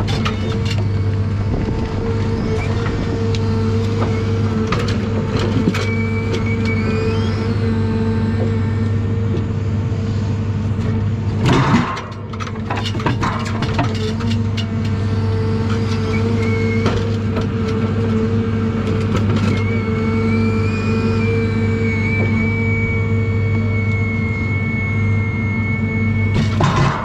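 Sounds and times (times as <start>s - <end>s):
diesel engine running under load: 0.0s - 27.0s
rising squeal: 0.4s - 9.8s, 15.8s - 17.2s, 19.4s - 27.0s
clatter of logs: 11.4s - 15.0s, 26.4s - 27.0s.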